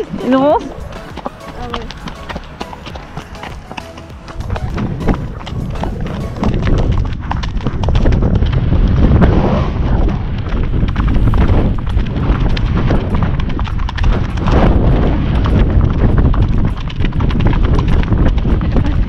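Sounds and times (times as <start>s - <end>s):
hooves on gravel: 0.0s - 19.0s
wind buffeting microphone: 0.0s - 19.0s.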